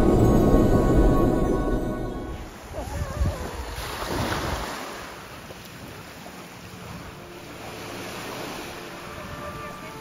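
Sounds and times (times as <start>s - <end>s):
wind on microphone: 2.3s - 4.8s
waves washing onto pebbles: 2.4s - 10.0s.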